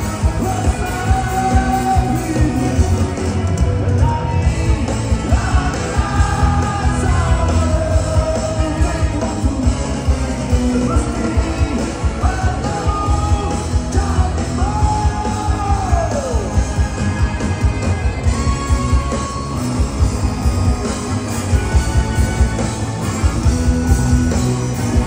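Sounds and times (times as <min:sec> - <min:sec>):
man singing: 0:00.0 - 0:16.8
electric guitar: 0:00.0 - 0:25.0
steady drum beat: 0:00.0 - 0:25.0.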